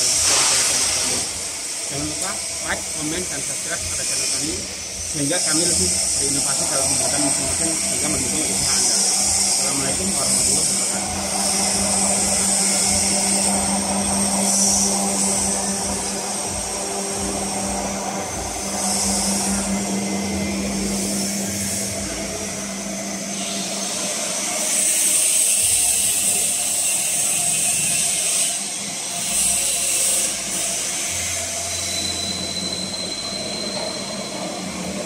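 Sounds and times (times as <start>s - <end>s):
machine hiss: 0.0s - 35.0s
motor hum: 1.4s - 26.8s.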